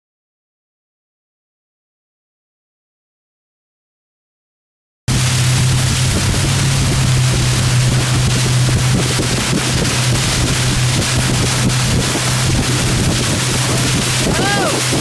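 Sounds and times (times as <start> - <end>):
outboard motor humming: 5.1 - 15.0
rushing boat wake: 5.1 - 15.0
wind buffeting microphone: 5.1 - 15.0.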